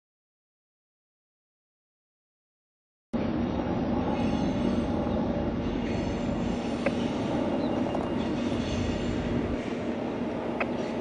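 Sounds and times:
train rumbling: 3.2s - 11.0s.

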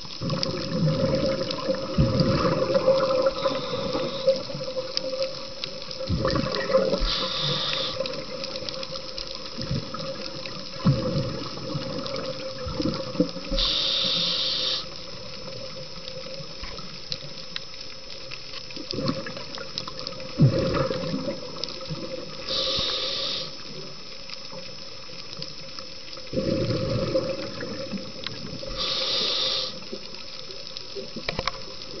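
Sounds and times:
exhaled bubbles gurgling: 0.0s - 32.0s
regulator hissing on inhalation: 2.9s - 5.0s, 6.8s - 8.6s, 13.5s - 15.2s, 22.4s - 23.8s, 28.6s - 30.0s.

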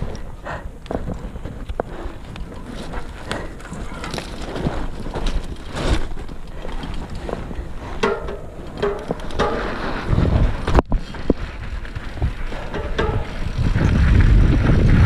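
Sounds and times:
bike clattering over bumps: 0.0s - 15.0s
bike tyres rolling on dirt: 0.0s - 15.0s
wind on microphone: 8.8s - 15.0s.

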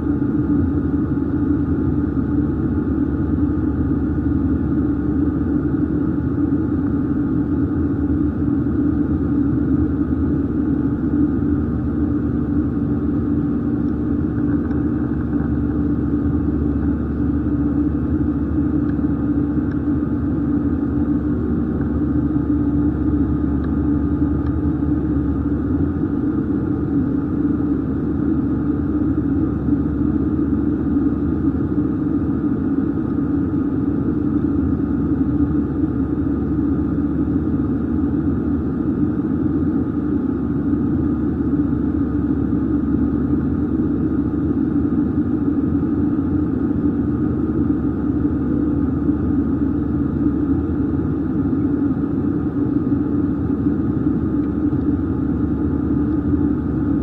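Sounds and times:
airliner cabin engine hum: 0.0s - 57.0s.

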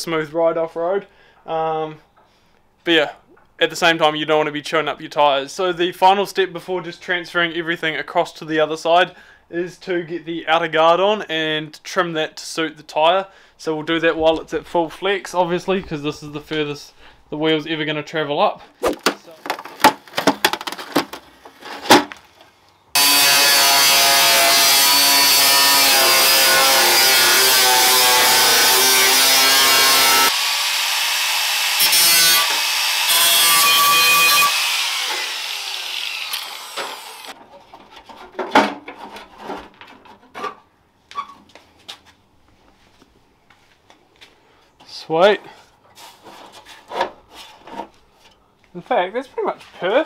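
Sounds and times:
angle grinder cutting metal: 23.0s - 37.4s.

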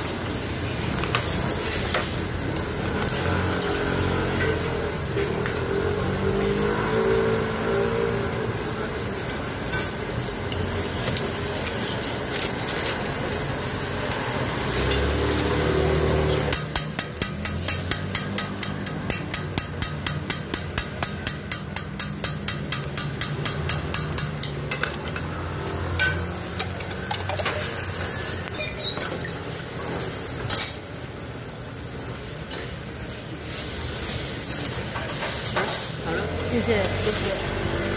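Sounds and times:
frying sizzle: 0.0s - 37.9s
metal spatula tapping griddle: 14.9s - 25.4s, 26.0s - 27.7s.

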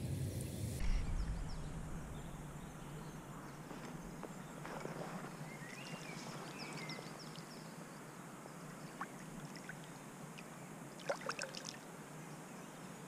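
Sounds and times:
birds chirping: 0.3s - 10.8s
faint river flowing: 0.4s - 13.0s
fish splashing in water: 3.6s - 7.5s.

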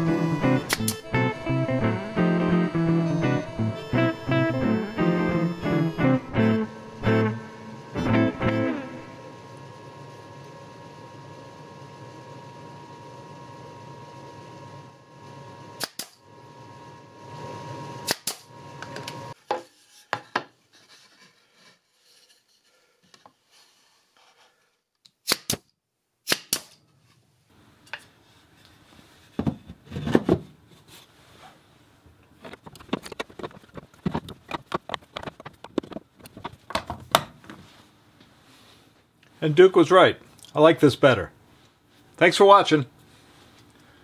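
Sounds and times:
steady hum: 0.0s - 19.4s
wooden knocks and clicks: 32.5s - 37.3s.

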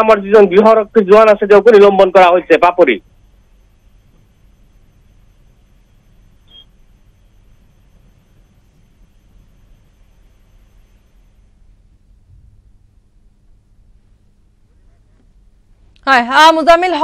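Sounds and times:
low mains hum: 0.0s - 17.0s
thin high whine: 0.0s - 17.0s
short high beep: 6.5s - 6.7s.

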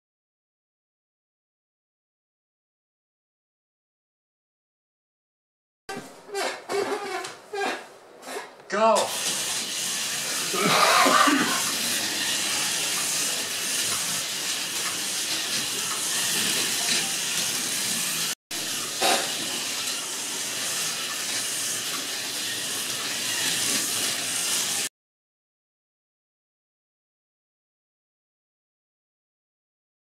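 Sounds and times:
slot cars whirring on track: 11.6s - 24.9s.

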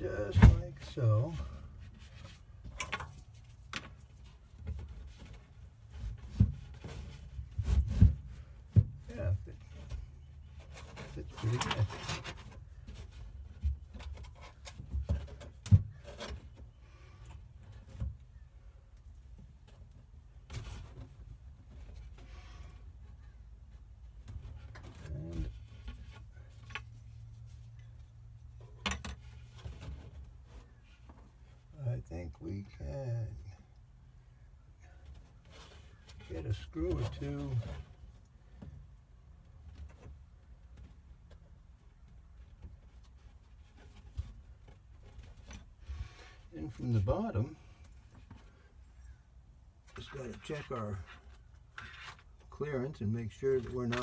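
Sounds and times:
dull knocks and thumps: 0.0s - 1.0s, 1.8s - 16.6s.

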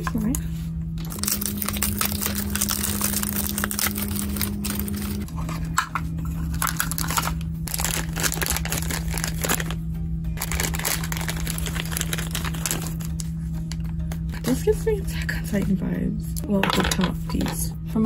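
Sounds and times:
plastic wrapper crinkling: 1.0s - 5.3s, 6.4s - 13.4s.

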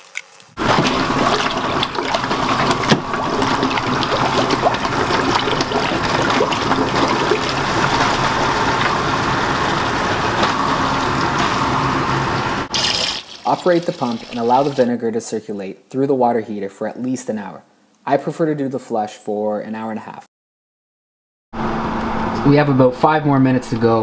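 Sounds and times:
sump pump running: 0.6s - 14.8s
liquid rushing and splashing: 0.6s - 14.9s.

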